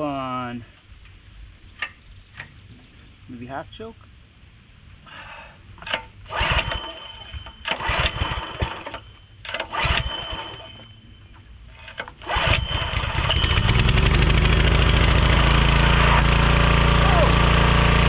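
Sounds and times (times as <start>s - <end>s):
recoil starter pulls: 5.8s - 18.0s
small engine running: 6.2s - 11.0s, 11.8s - 18.0s.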